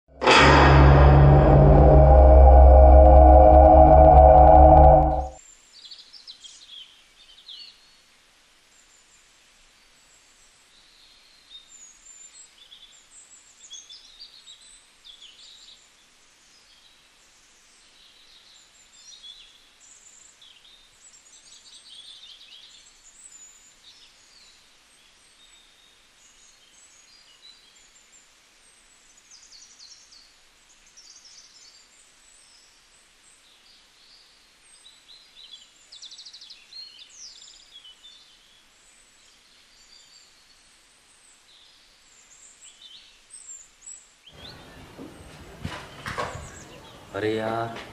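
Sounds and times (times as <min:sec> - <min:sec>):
small birds chirping: 0:33.4 - 0:47.6.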